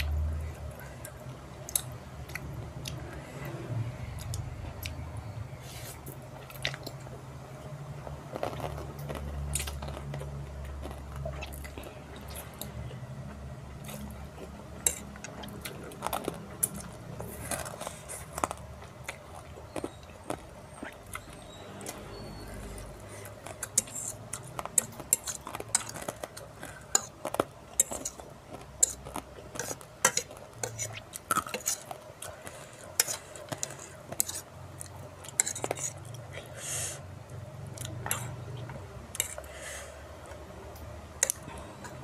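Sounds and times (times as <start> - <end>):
person chewing: 0.0 - 5.0, 5.7 - 7.2, 8.3 - 36.6, 37.7 - 42.0
fork scraping ceramic plate: 35.3 - 36.0.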